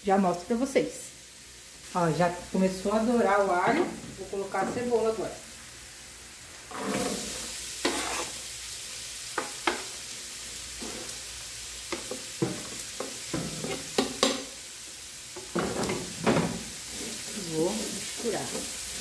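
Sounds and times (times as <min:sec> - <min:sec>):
oil sizzling: 0:00.0 - 0:19.0
knife scraping cutting board: 0:06.7 - 0:08.4.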